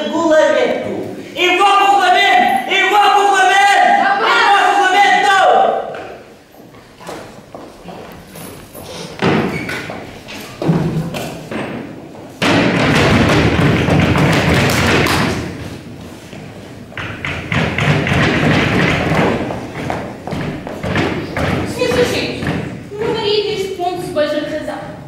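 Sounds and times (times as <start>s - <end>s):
boots stamping on stage floor: 16.3s - 23.3s.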